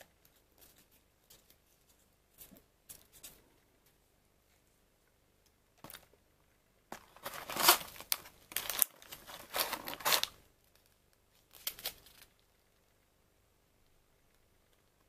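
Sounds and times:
rustling: 0:06.9 - 0:13.0
paper sachet crinkling: 0:07.0 - 0:12.4.

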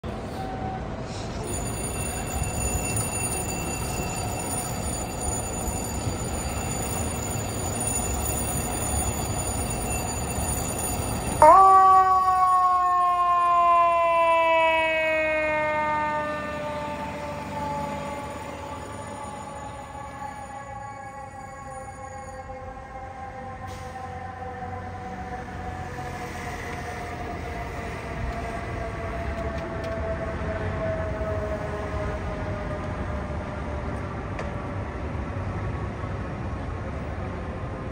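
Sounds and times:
city street noise: 0:00.0 - 0:37.9
fire engine horn tone: 0:11.4 - 0:25.4.

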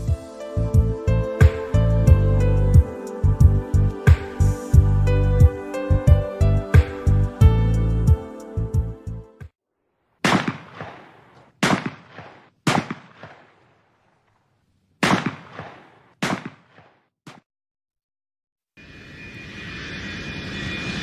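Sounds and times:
shotgun shots echoing: 0:10.2 - 0:14.3, 0:15.0 - 0:17.4.

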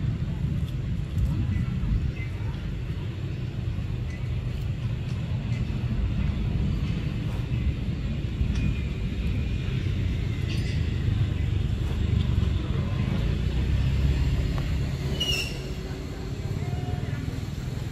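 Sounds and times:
low rumble: 0:00.0 - 0:17.9.

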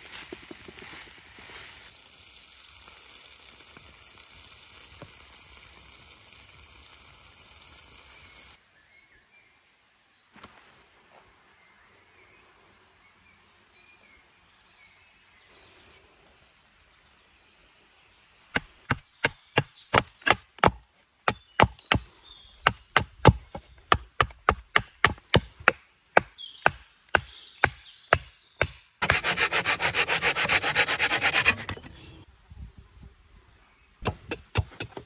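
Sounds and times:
fast rasping strokes: 0:18.9 - 0:22.0, 0:29.0 - 0:32.2.

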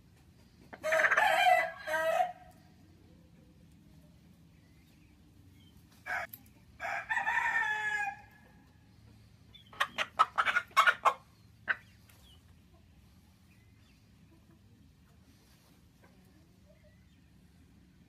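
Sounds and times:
chicken clucking: 0:00.1 - 0:01.6, 0:08.2 - 0:17.4
rooster crowing: 0:00.8 - 0:02.5, 0:06.1 - 0:08.3.

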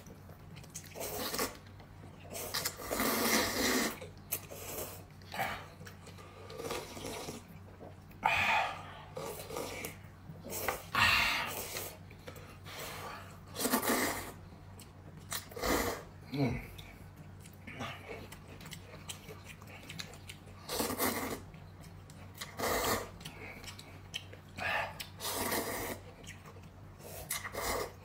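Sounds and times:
person eating noisily: 0:00.0 - 0:28.0
loud slurps: 0:02.3 - 0:05.0, 0:13.5 - 0:14.4, 0:25.2 - 0:26.0.

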